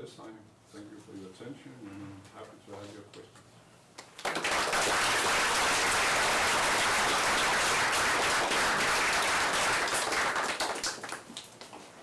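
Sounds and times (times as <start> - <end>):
audience applause: 4.2 - 11.5.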